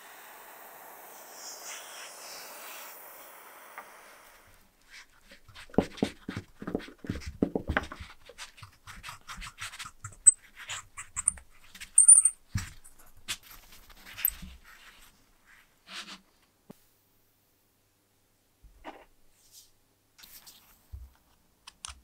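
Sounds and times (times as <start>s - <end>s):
short high squeaks: 12.0s - 12.4s.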